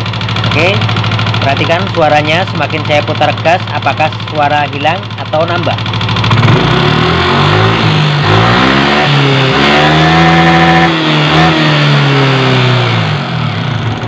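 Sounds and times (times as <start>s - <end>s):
engine knocking rattle: 0.0s - 7.0s
scooter engine revving: 0.0s - 14.0s.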